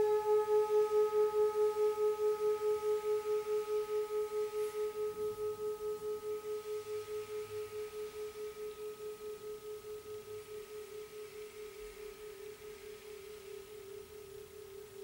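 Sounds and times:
singing bowl ringing: 0:00.0 - 0:15.0.

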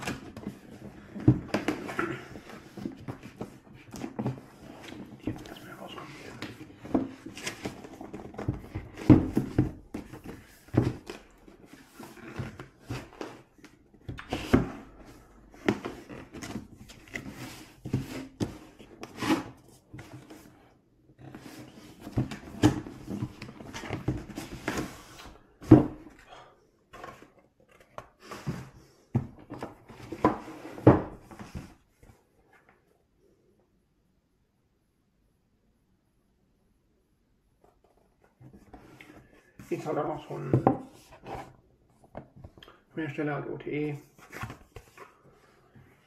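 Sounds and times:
cardboard box knocks and rustles: 0:06.9 - 0:11.1.

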